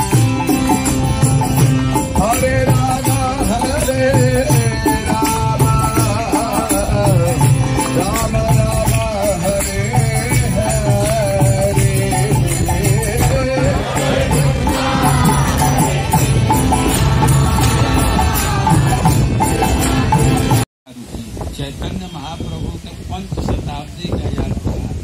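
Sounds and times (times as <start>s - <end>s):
jingling hand percussion: 0.0s - 20.6s.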